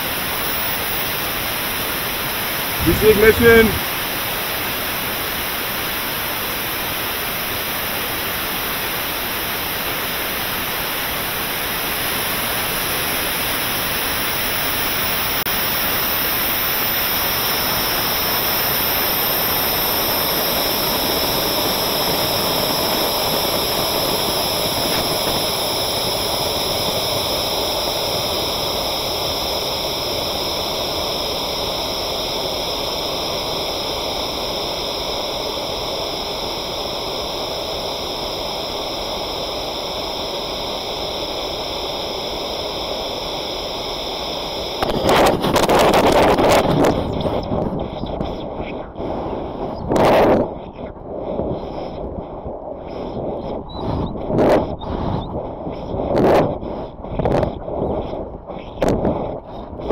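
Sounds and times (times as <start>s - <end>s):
rushing air over rocket: 2.8s - 4.2s.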